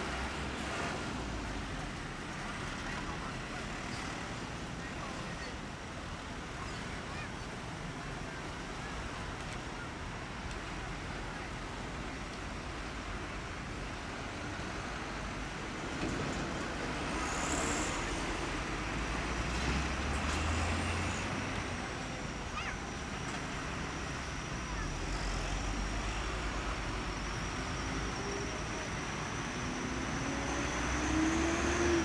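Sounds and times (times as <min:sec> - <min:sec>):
road traffic rumble: 0:00.0 - 0:32.0
truck diesel engine droning: 0:17.0 - 0:32.0.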